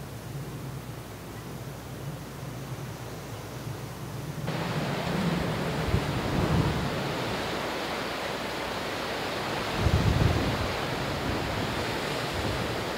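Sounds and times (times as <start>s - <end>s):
storm wind blowing: 4.4s - 12.9s
wind gusts buffeting microphone: 4.4s - 12.9s.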